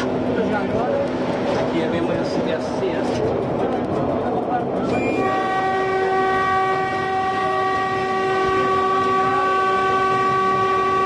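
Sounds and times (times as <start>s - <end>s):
railcar running noise: 0.0s - 11.0s
railcar horn blast: 4.9s - 11.0s.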